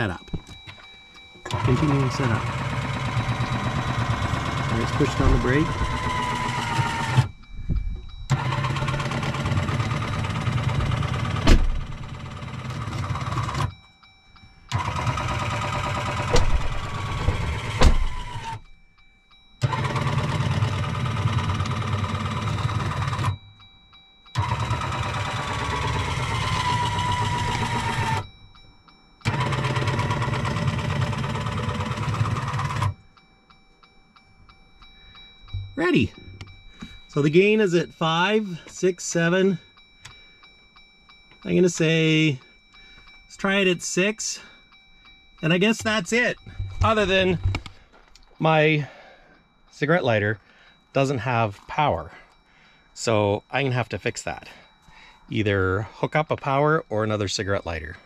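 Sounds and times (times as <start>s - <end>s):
brake unit motor running: 0.3s - 18.7s, 19.6s - 28.6s, 29.2s - 33.1s, 45.4s - 48.9s.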